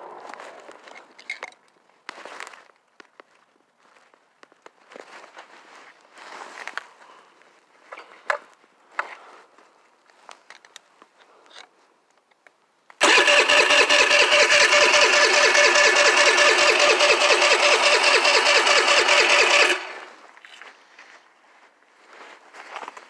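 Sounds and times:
engine cranking by electric starter: 13.0 - 20.2.

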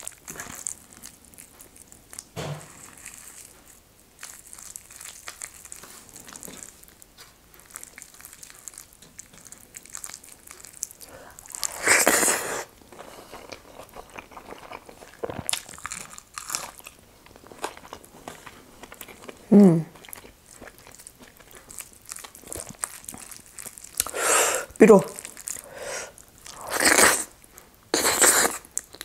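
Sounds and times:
chewing: 0.0 - 29.0
loud crunchy bite: 11.5 - 12.7, 26.5 - 27.3.

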